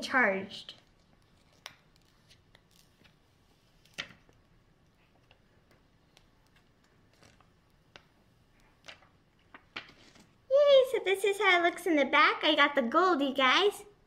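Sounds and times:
plastic wrap crinkling: 0.6s - 10.4s.

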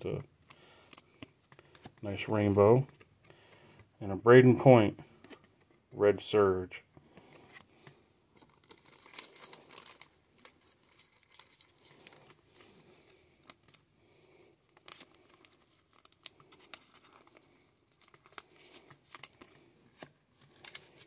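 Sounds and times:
plastic sleeve crinkling: 7.3s - 13.9s, 14.6s - 21.0s.

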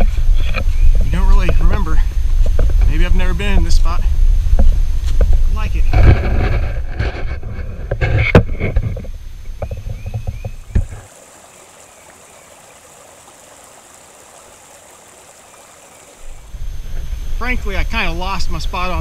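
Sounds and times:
creek running over stones: 10.2s - 16.6s.

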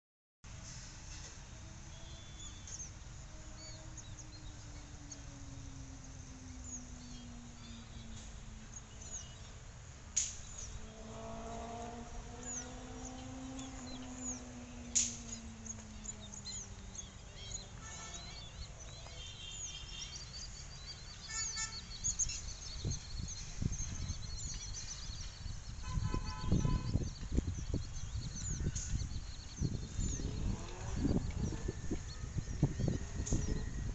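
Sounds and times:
distant engine drone: 0.5s - 33.9s
birds chirping: 1.6s - 33.9s
low rumbling bumps: 22.6s - 33.9s.

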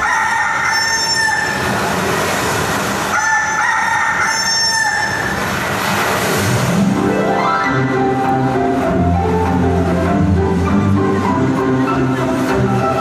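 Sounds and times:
long high-pitched calls: 0.2s - 1.6s, 3.2s - 5.3s
steady rushing noise: 1.4s - 4.2s, 4.9s - 13.0s.

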